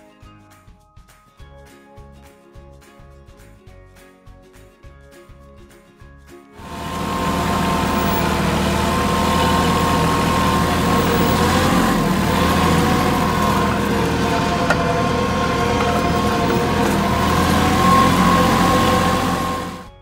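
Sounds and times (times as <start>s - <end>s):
tractor diesel engine running: 6.6s - 20.0s.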